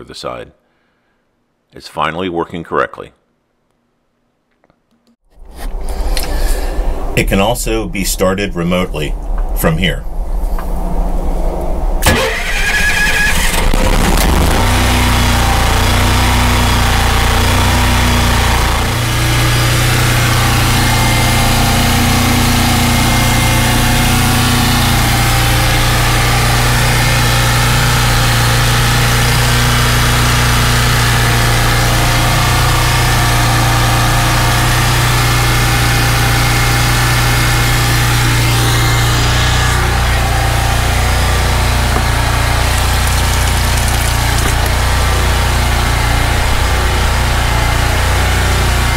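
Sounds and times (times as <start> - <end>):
generator engine cranking: 12.0 - 48.9
generator running hum: 12.0 - 48.9.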